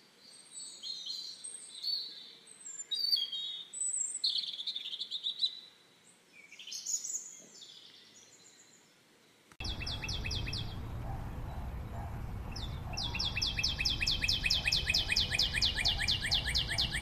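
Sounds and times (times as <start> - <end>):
low rumble: 9.6 - 16.8
bird chirps sweeping downward: 9.6 - 17.0.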